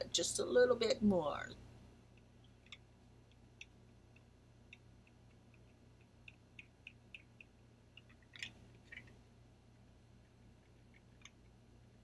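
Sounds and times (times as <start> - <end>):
low steady hum: 0.0 - 12.0
derma roller clicking on skin: 2.1 - 9.2, 10.2 - 12.0.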